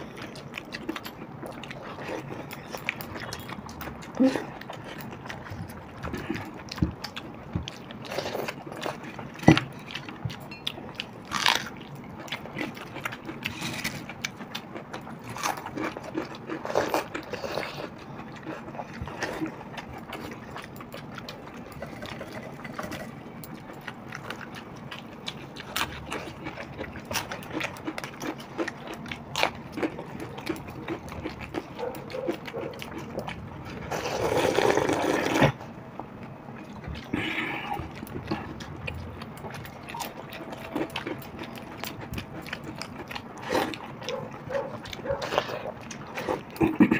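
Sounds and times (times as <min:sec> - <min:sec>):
chewing and lip smacks: 0:00.0 - 0:46.9
slurps: 0:33.9 - 0:35.6.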